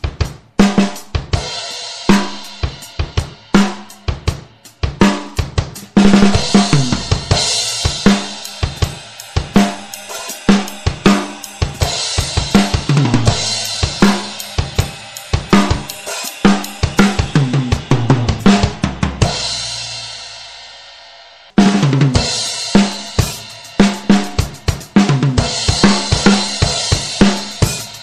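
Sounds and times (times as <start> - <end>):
drum kit playing a steady beat: 0.0 - 28.0
cymbal crash ringing: 6.3 - 20.6.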